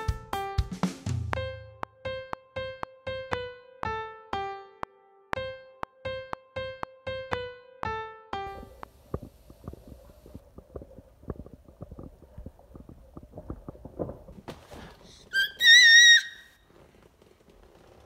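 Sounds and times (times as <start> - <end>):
toddler squealing: 15.3 - 16.6.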